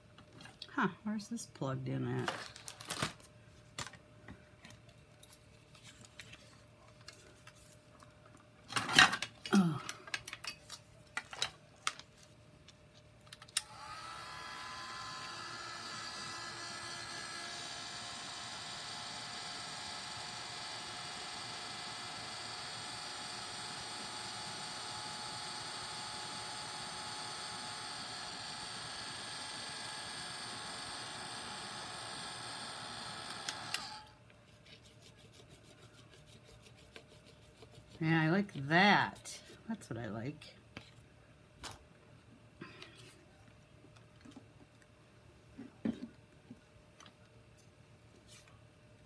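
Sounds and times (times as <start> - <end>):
electric blower motor whining: 13.6 - 34.1.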